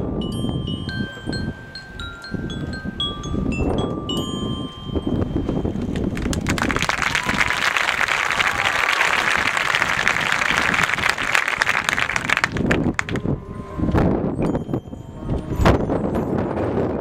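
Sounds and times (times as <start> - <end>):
crowd applauding: 6.0 - 13.2.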